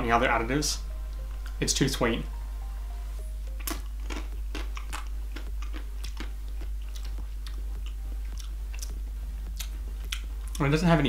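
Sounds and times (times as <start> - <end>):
steady low hum: 0.0 - 11.0
person chewing: 3.4 - 10.7.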